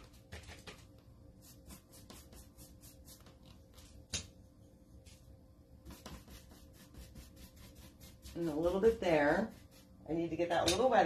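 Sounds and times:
paintbrush scratchy strokes: 0:01.4 - 0:03.8, 0:05.9 - 0:10.1.

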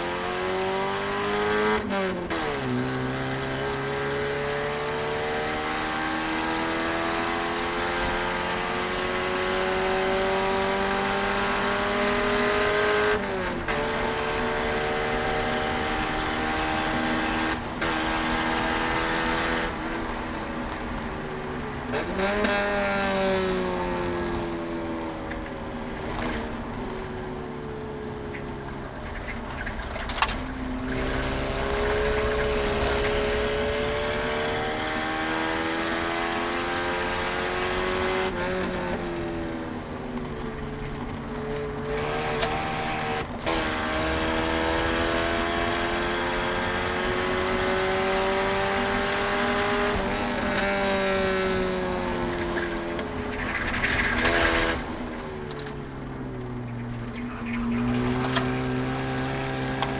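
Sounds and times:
car engine under load: 0:00.0 - 0:59.9.

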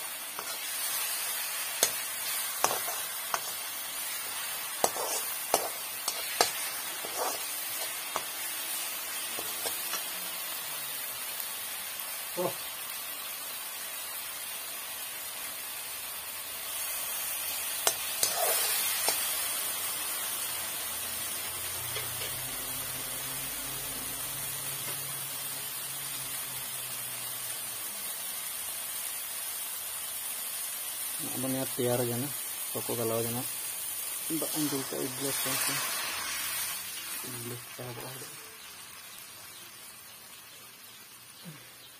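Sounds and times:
spices sizzling in oil: 0:00.0 - 0:41.9
metal spatula scraping pan: 0:00.4 - 0:08.5, 0:17.8 - 0:19.3.

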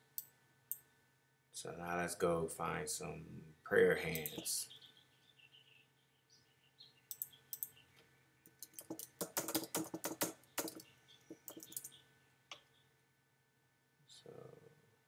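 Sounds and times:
typing on computer keyboard: 0:08.5 - 0:10.8, 0:11.4 - 0:11.9.

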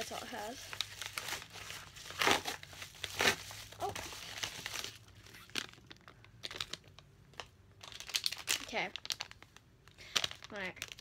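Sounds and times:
cardboard package rustling: 0:00.0 - 0:11.0.

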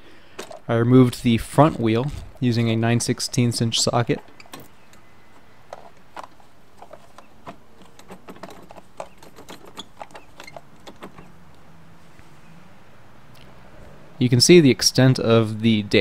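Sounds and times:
plastic wheel clicks and knocks: 0:00.4 - 0:00.6, 0:04.0 - 0:11.3.

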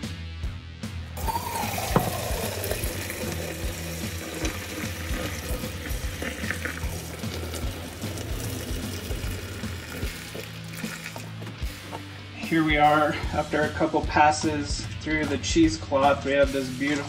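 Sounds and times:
background music: 0:00.0 - 0:17.0
liquid splashing into a sink: 0:01.2 - 0:11.5.

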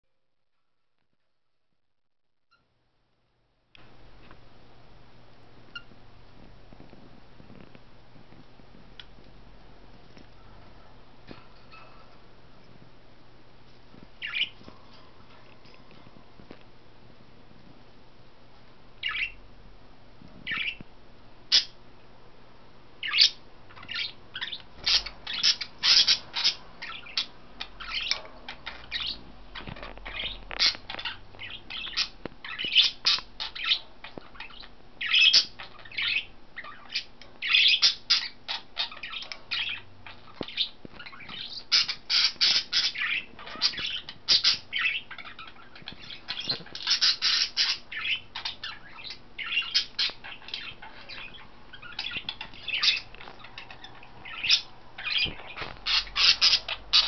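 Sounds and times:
budgerigars chirping: 0:14.2 - 0:14.6, 0:19.0 - 0:19.4, 0:20.5 - 0:20.8, 0:21.5 - 0:21.8, 0:23.0 - 0:57.0.

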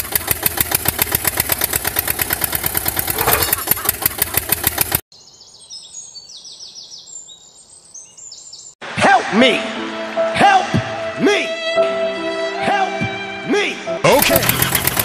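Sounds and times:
tractor engine chugging: 0:00.0 - 0:05.0, 0:14.1 - 0:15.0
faint high bird chirps: 0:05.1 - 0:08.8.

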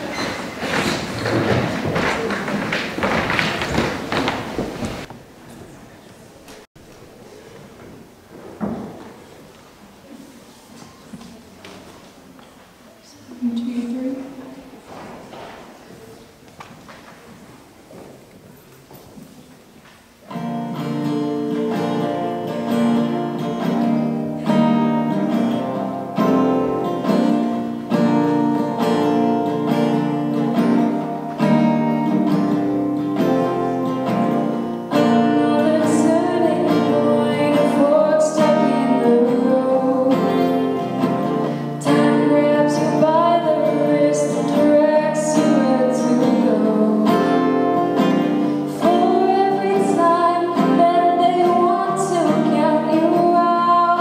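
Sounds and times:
acoustic guitar strumming: 0:20.3 - 0:54.0
woman singing: 0:34.9 - 0:41.0, 0:41.8 - 0:48.1, 0:48.7 - 0:54.0.

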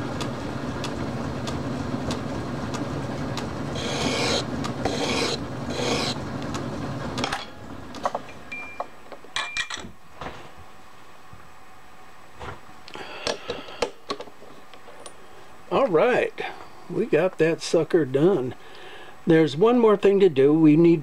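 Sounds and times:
metal lathe running: 0:03.4 - 0:06.4
lathe tool scraping hiss: 0:03.7 - 0:06.2.

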